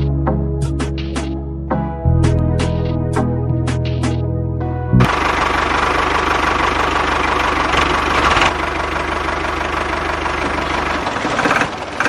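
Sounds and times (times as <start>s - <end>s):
diesel tractor engine knocking: 5.1s - 12.0s.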